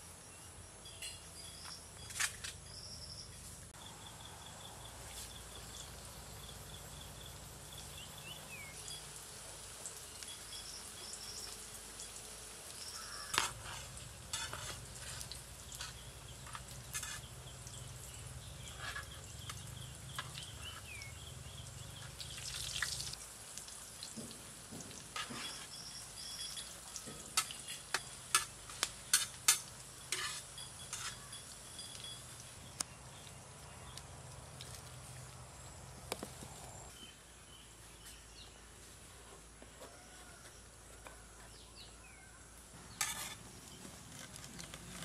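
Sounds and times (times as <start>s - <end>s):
faint sizzle: 3.8s - 35.7s.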